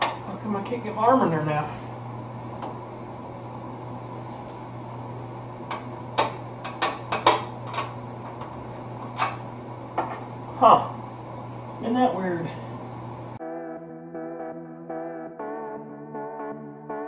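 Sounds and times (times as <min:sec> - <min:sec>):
steady low hum: 0:00.0 - 0:13.4.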